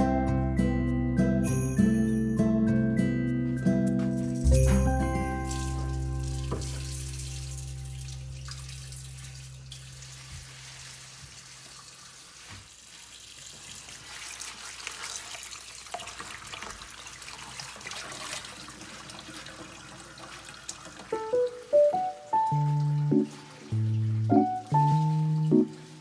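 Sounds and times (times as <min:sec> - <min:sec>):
tap running into steel sink: 0:04.5 - 0:07.2
leaves swished in water: 0:05.2 - 0:15.5, 0:22.7 - 0:26.0
small splashes and drips: 0:05.4 - 0:26.0.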